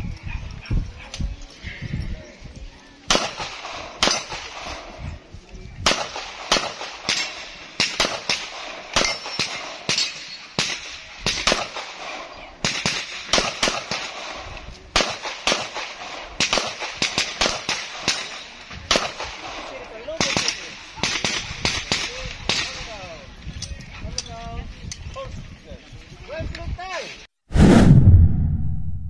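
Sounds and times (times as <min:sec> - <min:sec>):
pistol shots: 0:05.8 - 0:22.7.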